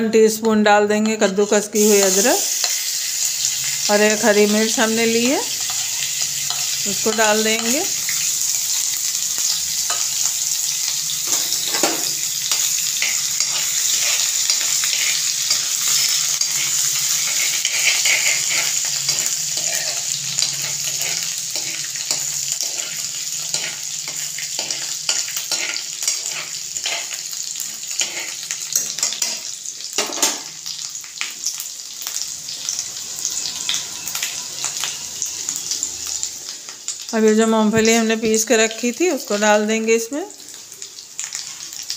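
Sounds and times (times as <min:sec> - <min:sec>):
spices sizzling in hot oil: 0:00.0 - 0:41.9
metal spoon scraping a pan: 0:05.5 - 0:30.3.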